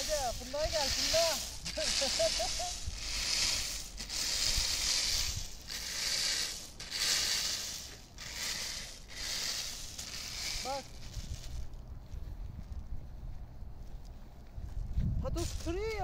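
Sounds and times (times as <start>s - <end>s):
rake dragged through nuts: 0.0s - 11.8s, 15.3s - 16.0s.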